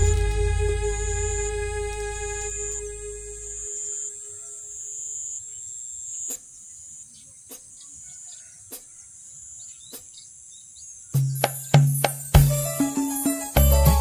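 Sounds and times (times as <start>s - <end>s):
high-pitched insect drone: 0.0s - 6.3s.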